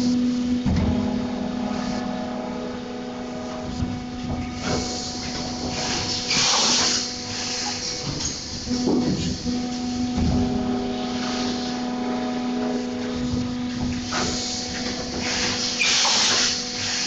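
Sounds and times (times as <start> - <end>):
moulding machine humming: 0.0 - 17.0
compressed air hissing: 3.4 - 17.0.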